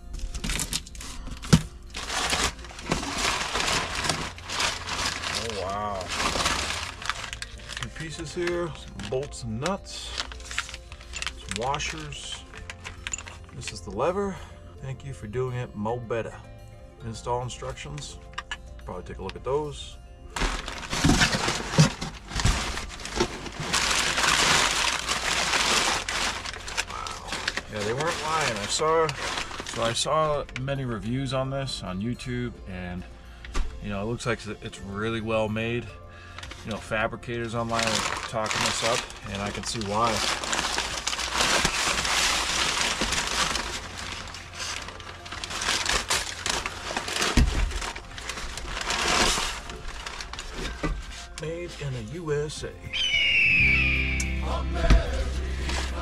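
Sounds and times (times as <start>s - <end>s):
paper crinkling and rustling: 0.0s - 14.3s, 20.4s - 30.8s, 36.3s - 52.2s, 54.4s - 56.0s.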